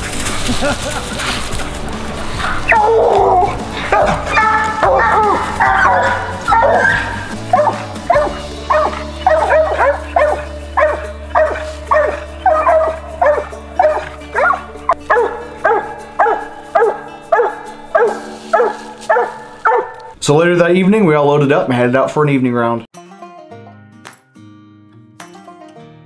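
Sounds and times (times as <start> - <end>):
background music: 0.0 - 21.9, 22.9 - 26.0
dog barking: 2.7 - 20.2.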